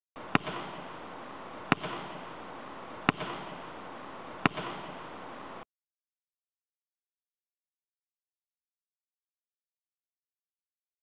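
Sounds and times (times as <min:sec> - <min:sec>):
ball hitting hard with echo: 0:00.2 - 0:01.0, 0:01.6 - 0:02.4, 0:03.0 - 0:05.2
steady hiss: 0:00.2 - 0:05.6.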